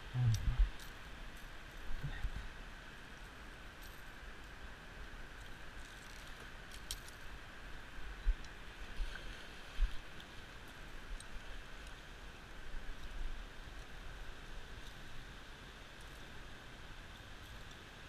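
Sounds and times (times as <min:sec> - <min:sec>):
steady high hum: 0:00.0 - 0:05.3.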